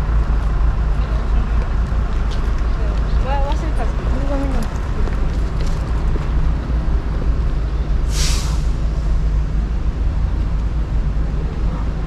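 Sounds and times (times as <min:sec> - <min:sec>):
large vehicle engine rumble: 0:00.0 - 0:12.0
air brake hiss: 0:08.1 - 0:08.8.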